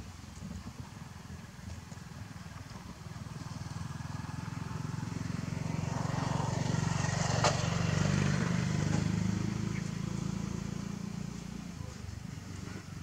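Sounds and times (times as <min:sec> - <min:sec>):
vehicle engine passing by: 0:02.9 - 0:13.0.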